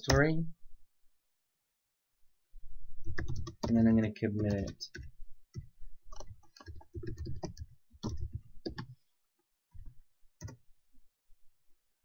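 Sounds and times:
typing on computer keyboard: 3.1 - 3.8, 4.4 - 9.0, 9.8 - 10.6.

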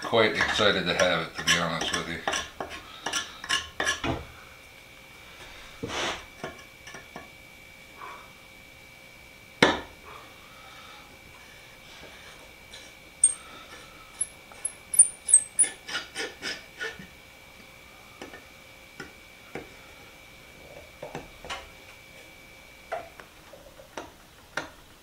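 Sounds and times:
screwdriver clicking and squeaking on screw: 14.2 - 16.0.

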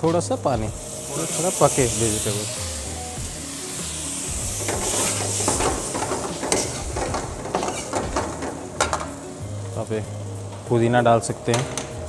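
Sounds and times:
gravy sizzling in a pan: 0.0 - 11.3
metal ladle scraping pan: 4.6 - 9.0.

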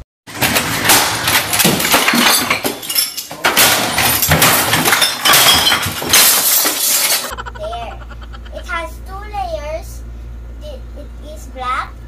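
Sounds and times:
glass breaking: 0.3 - 7.3
objects crashing and clattering: 0.3 - 7.3.

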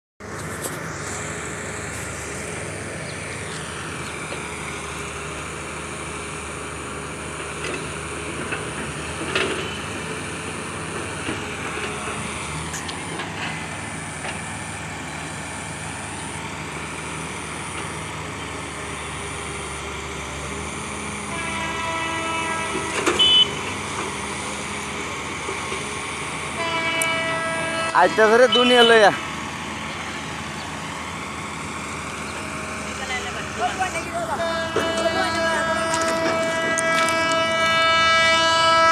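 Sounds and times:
engine hum: 0.2 - 38.9
locomotive horn chord: 21.1 - 24.4, 26.5 - 29.2, 32.4 - 38.9.

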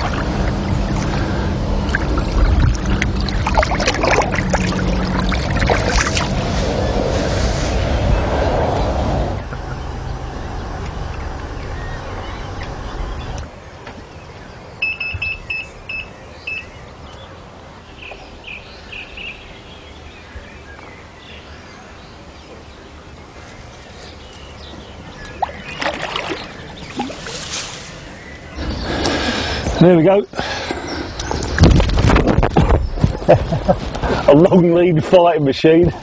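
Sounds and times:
low rumbling: 0.0 - 34.5
chirps: 8.1 - 17.4, 22.4 - 34.2
short high beeps: 14.8 - 16.7.

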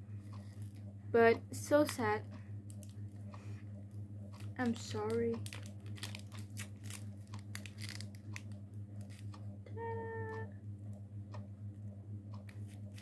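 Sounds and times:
steady low hum: 0.0 - 13.0
plastic packaging crinkling: 4.4 - 9.3
short hummed vocal tone: 9.6 - 10.6.

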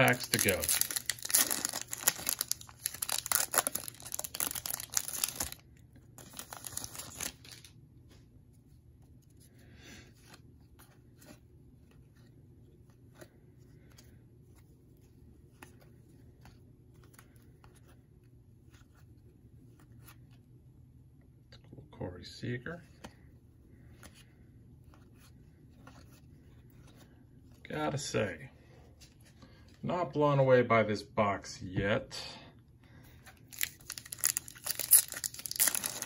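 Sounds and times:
foil wrapper tearing and crinkling: 0.0 - 5.6, 6.2 - 7.7, 33.5 - 36.0
paper cards flipped by hand: 6.2 - 8.2, 23.0 - 27.1.

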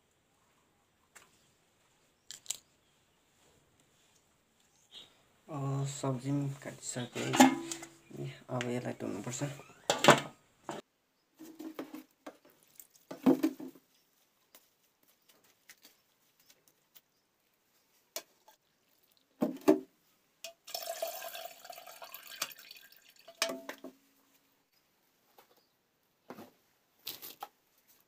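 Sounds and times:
metal plate clatter: 7.2 - 7.9
metal plate clinking: 7.2 - 8.0
water splashing and dripping: 20.7 - 23.8.

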